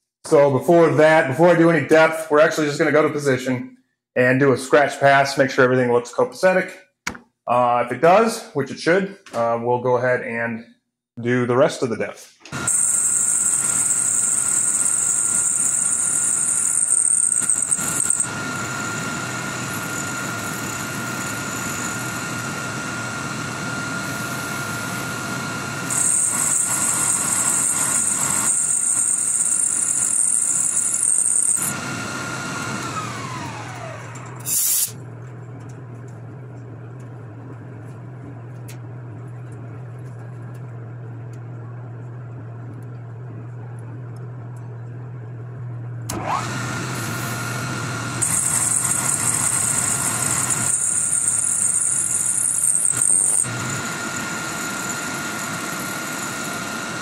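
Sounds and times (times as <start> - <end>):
milling spindle whine: 12.6 - 57.0
high-pitched cutting hiss: 34.4 - 35.0
low steady hum: 35.0 - 46.2.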